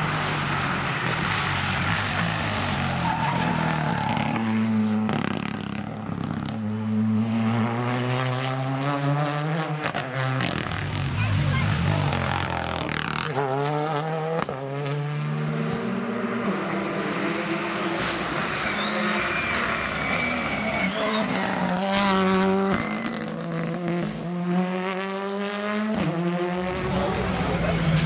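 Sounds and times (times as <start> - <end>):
rally car engines revving: 0.0 - 28.0
tyre squeal: 18.5 - 23.4.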